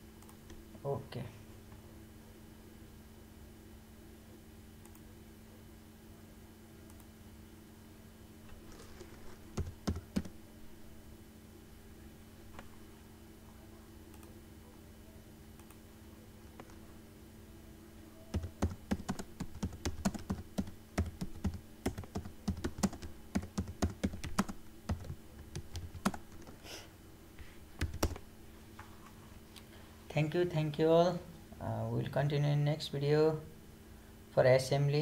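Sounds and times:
steady low hum: 0:00.0 - 0:35.0
keyboard typing clicks: 0:09.5 - 0:10.3, 0:18.3 - 0:26.5, 0:27.8 - 0:28.2.

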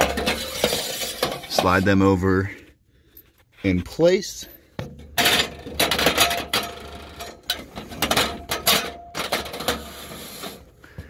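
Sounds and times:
metal brackets scraping and clicking: 0:00.0 - 0:02.3, 0:05.1 - 0:10.6.

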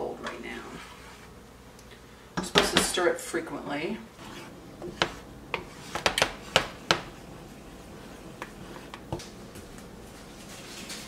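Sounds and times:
spoon stirring in saucepan: 0:04.0 - 0:11.0.

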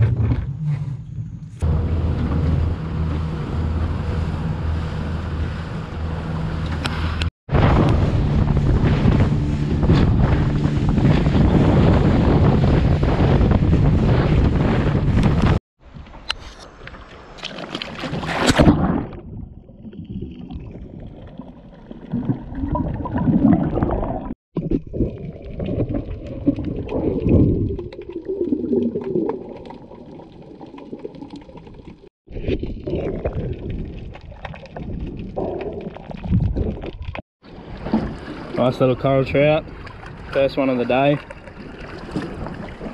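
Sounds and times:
water splashing: 0:17.2 - 0:42.9.

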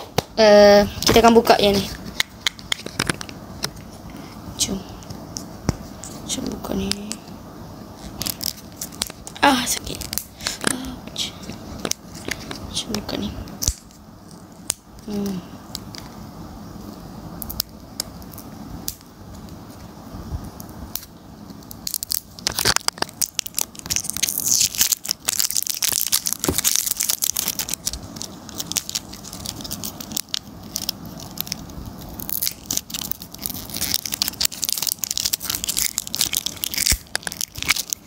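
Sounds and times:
plastic wrapping crackling: 0:08.0 - 0:15.4, 0:21.6 - 0:38.0.

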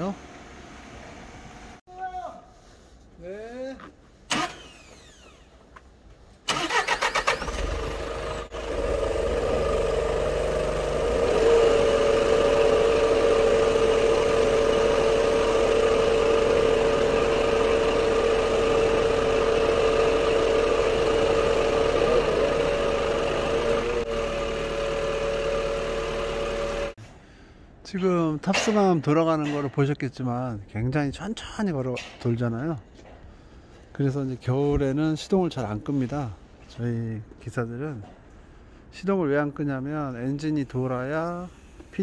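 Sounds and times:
truck engine whining: 0:06.5 - 0:27.0.

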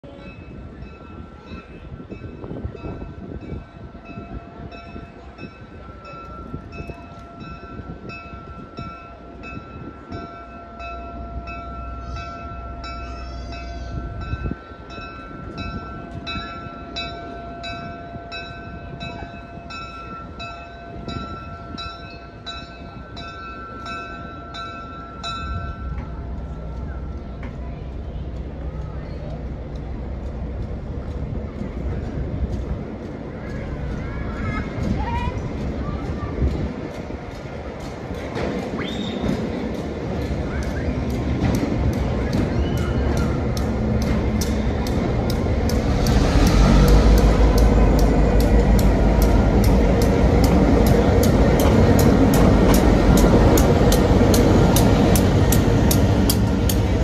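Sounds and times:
railway bell ringing: 0:00.0 - 0:38.1, 0:38.9 - 0:57.0
slow train rumbling: 0:00.0 - 0:57.0.

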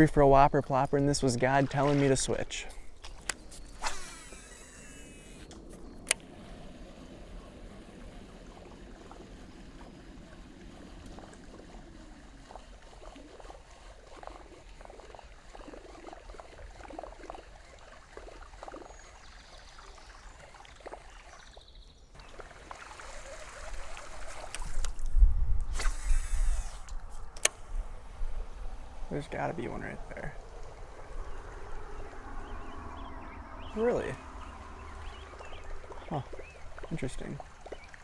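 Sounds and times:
water lapping around kayak: 0:01.2 - 0:38.0
faint water drips: 0:07.6 - 0:25.2, 0:29.1 - 0:38.0.

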